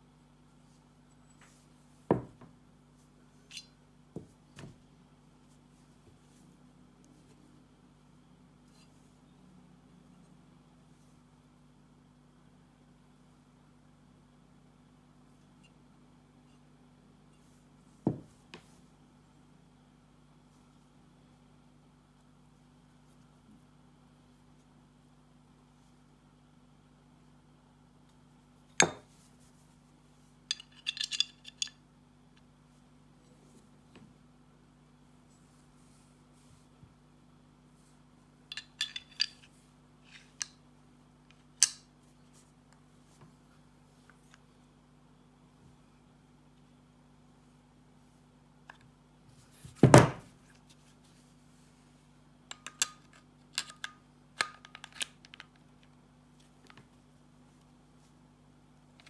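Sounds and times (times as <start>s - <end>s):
small metal clinks: 30.5s - 31.8s
metallic click of pistol parts: 41.6s - 41.9s, 52.5s - 55.5s.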